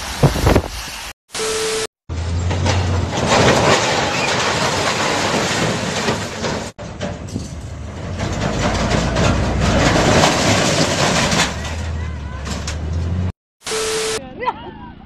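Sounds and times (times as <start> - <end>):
heavy truck rumbling and clattering: 2.1 - 13.4.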